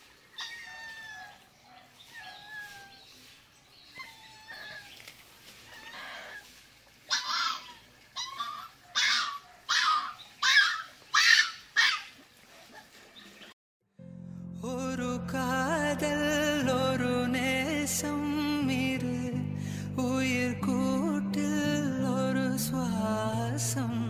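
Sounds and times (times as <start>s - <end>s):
puppy whining and yelping: 4.0s - 4.9s, 8.2s - 12.1s.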